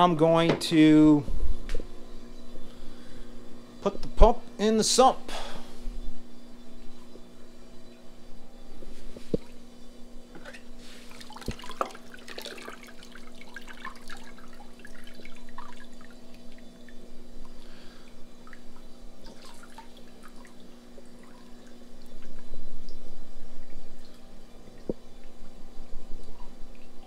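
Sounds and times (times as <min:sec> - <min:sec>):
steady hum: 0:00.0 - 0:27.0
water splashing and dripping: 0:11.1 - 0:16.6, 0:18.4 - 0:23.0.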